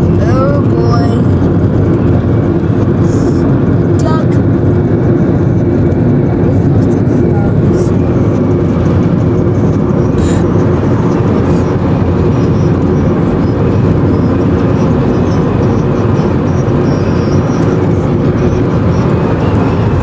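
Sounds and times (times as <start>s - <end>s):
car road noise from inside: 0.0s - 20.0s.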